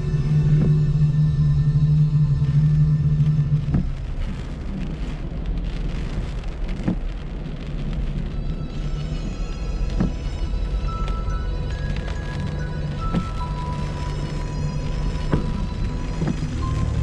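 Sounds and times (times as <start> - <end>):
held low music note: 0.0 - 4.8
steady rain hiss: 0.0 - 17.0
faint music tones: 7.8 - 17.0.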